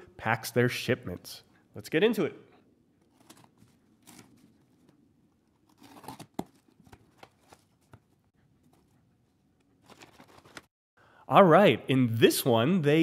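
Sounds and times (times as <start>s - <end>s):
knife slitting packing tape: 5.7s - 6.6s.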